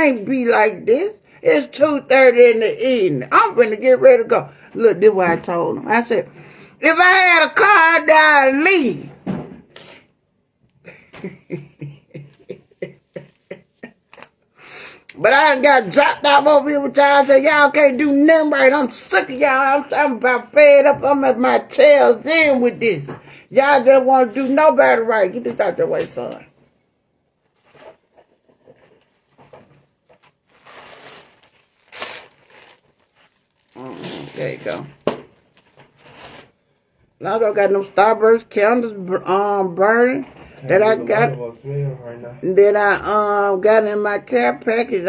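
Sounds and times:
woman laughing: 0:10.8 - 0:14.3.

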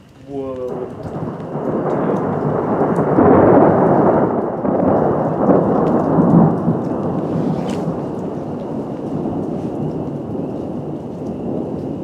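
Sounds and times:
rain pattering: 0:00.0 - 0:12.0
thunder rumbling: 0:00.0 - 0:12.0.

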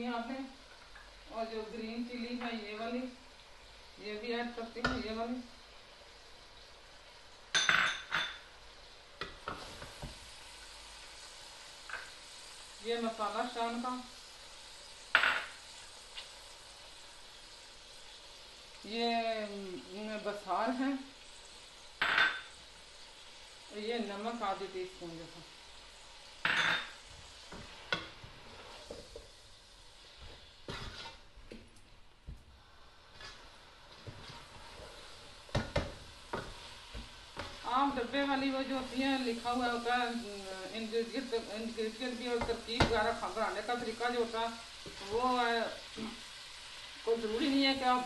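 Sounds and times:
faint sizzling: 0:00.0 - 0:48.0
wooden spoon scraping pot: 0:27.5 - 0:29.3, 0:30.2 - 0:31.3, 0:33.1 - 0:37.7.

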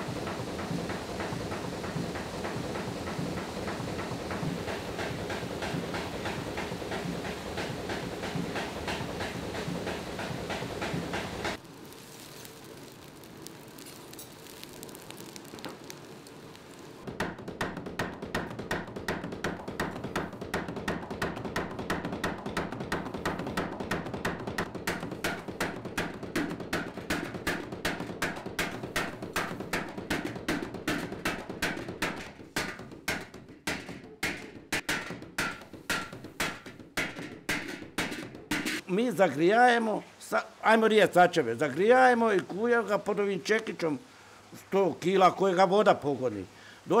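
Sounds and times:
trip hammer pounding iron: 0:00.0 - 0:11.6, 0:17.0 - 0:38.9
steady hiss: 0:00.0 - 0:47.0.

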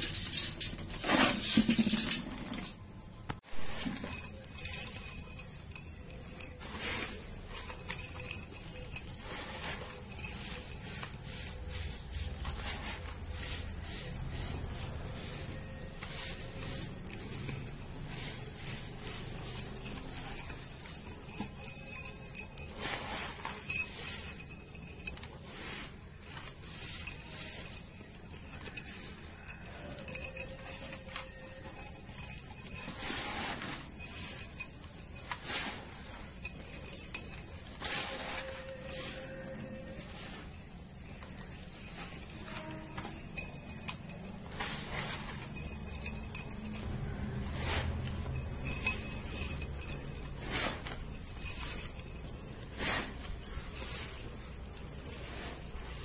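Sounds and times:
sand trickling through fingers: 0:09.2 - 0:19.5.

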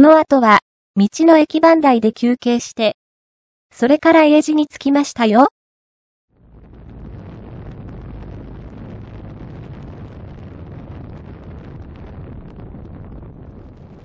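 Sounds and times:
wind buffeting microphone: 0:06.4 - 0:14.0.

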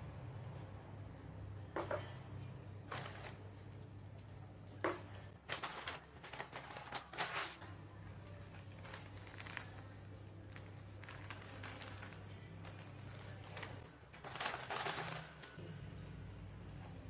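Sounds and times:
paper bag rustling and crinkling: 0:02.9 - 0:03.4, 0:05.4 - 0:15.6
plastic packet crinkling: 0:05.4 - 0:07.6, 0:08.6 - 0:09.9, 0:10.5 - 0:15.6.

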